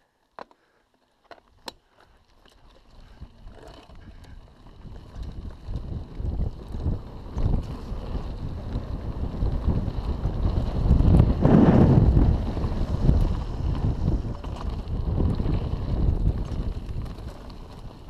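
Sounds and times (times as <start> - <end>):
bike tyre rumble on dirt: 0.0 - 18.0
wind buffeting microphone: 3.0 - 18.0.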